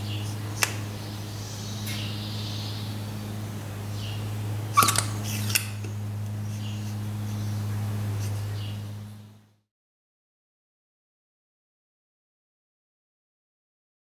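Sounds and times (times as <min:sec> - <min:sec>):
steady low hum: 0:00.0 - 0:09.7
pump squeak: 0:04.7 - 0:05.8
pump clicks: 0:04.8 - 0:06.0.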